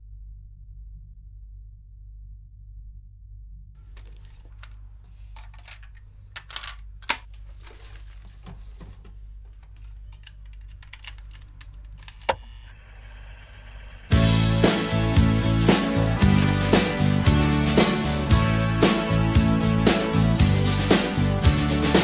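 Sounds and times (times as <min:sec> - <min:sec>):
hands rummaging small objects: 0:03.9 - 0:12.1, 0:14.7 - 0:17.0
small clicks and knocks: 0:04.0 - 0:12.4.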